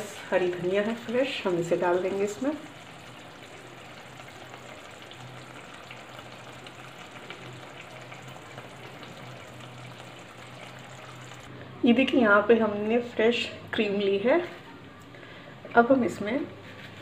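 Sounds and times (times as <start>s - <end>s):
gravy bubbling and sizzling: 0.0s - 11.5s.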